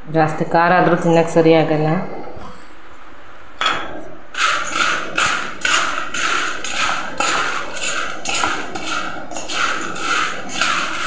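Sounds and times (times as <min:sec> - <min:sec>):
chips crunching against steel plate: 0:04.4 - 0:11.0.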